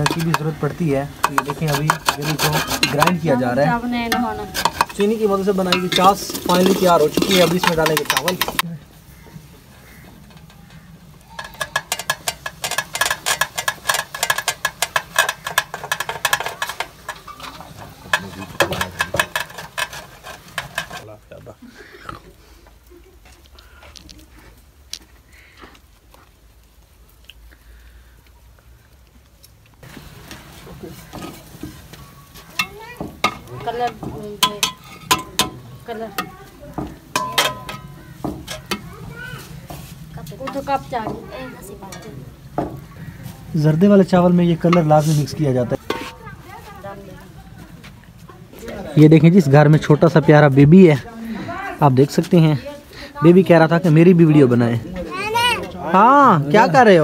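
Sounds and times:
steel utensils clicking and scraping: 0.0 - 8.7, 9.3 - 21.1, 29.8 - 46.9.

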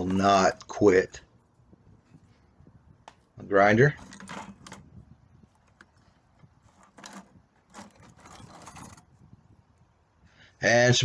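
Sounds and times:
grinding discs clinking in bucket: 4.0 - 4.9.

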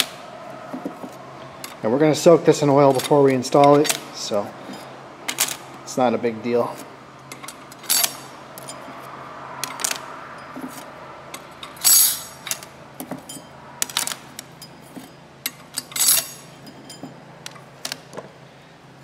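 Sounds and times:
metal plates clinking: 7.3 - 17.6.

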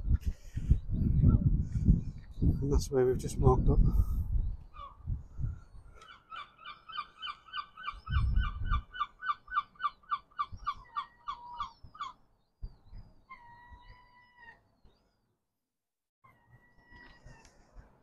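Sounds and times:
gull calling: 6.0 - 12.2.

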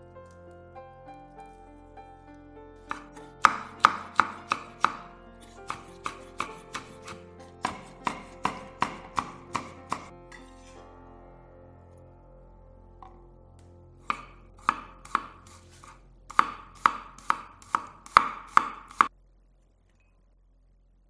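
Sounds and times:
soft background music: 0.0 - 19.1
knife chopping on wooden board: 2.9 - 10.1, 14.1 - 19.1.

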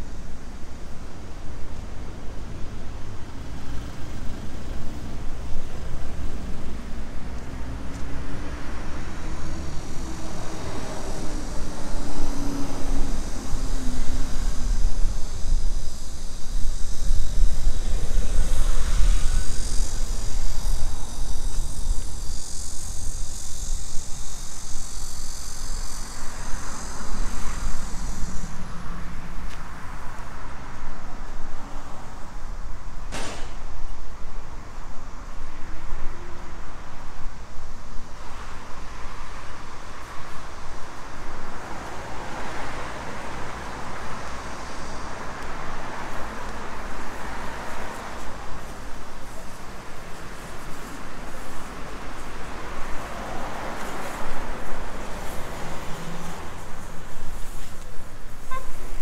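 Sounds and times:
road traffic: 0.0 - 59.0
high steady buzz: 8.2 - 29.4
sharp click: 33.1 - 33.6.

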